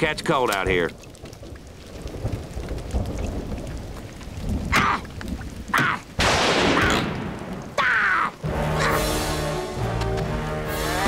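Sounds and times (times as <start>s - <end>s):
steady rain: 0.0s - 11.0s
thunder crack: 1.9s - 7.8s.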